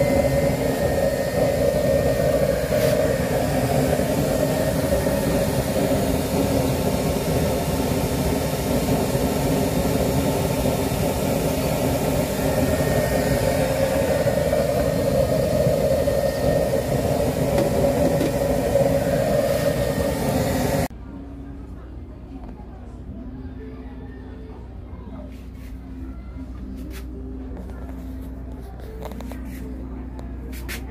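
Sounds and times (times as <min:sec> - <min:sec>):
oil stove roaring: 0:00.0 - 0:20.9.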